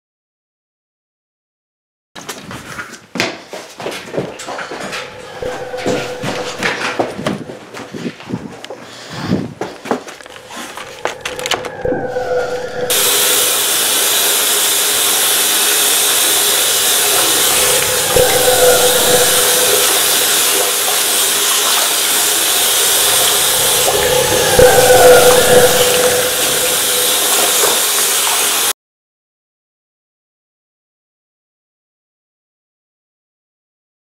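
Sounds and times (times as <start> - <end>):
faucet water running into sink: 12.9 - 28.7.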